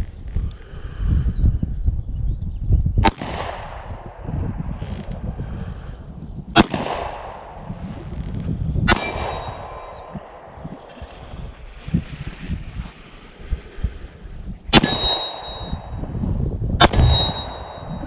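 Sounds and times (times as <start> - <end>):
pistol shots: 6.5 - 7.7, 8.9 - 10.8, 16.8 - 17.8
brief ringing tone: 14.8 - 16.0, 17.0 - 18.0.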